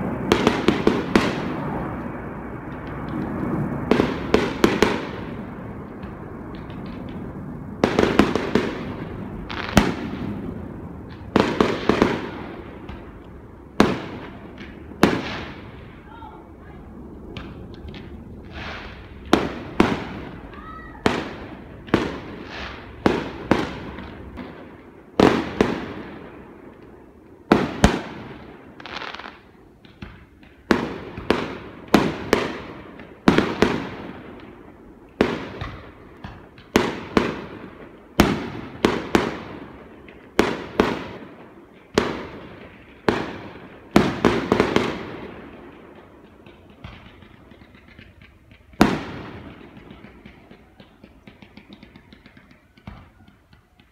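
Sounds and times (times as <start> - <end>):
firework shells bursting: 43.9 - 53.9.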